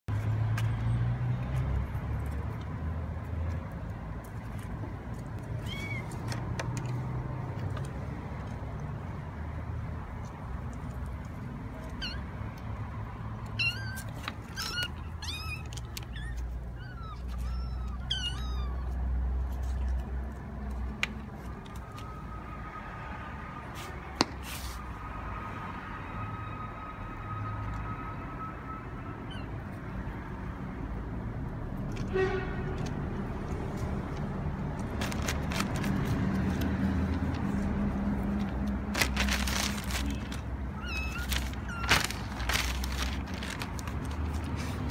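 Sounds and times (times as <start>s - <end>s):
kitten meowing: 5.4s - 6.2s, 11.8s - 12.4s, 13.4s - 19.1s, 40.7s - 42.4s
plastic bag crinkling: 38.9s - 44.5s.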